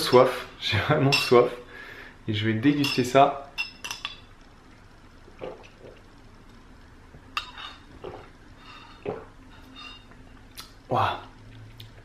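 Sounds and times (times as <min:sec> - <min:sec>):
glass clink: 0:02.8 - 0:04.3, 0:09.7 - 0:10.2.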